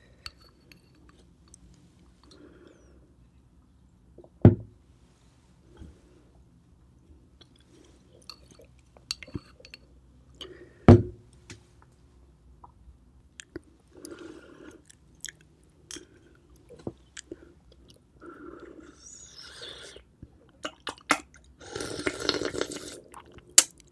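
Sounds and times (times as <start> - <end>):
wet slurping and chewing: 17.2 - 23.9.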